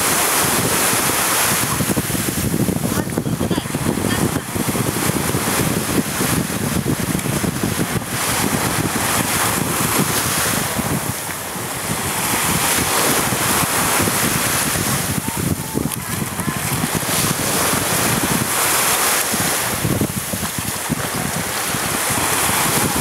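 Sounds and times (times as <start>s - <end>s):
sea wash: 0.0s - 23.0s
wind buffeting microphone: 0.0s - 23.0s.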